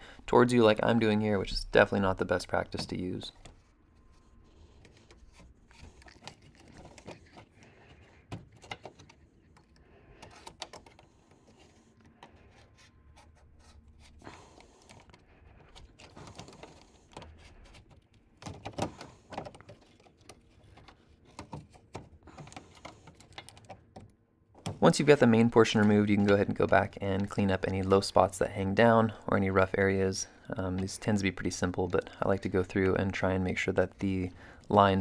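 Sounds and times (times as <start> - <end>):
knife scraping through plastic: 3.4 - 9.5
plastic panel clicks and crackles: 14.9 - 24.8.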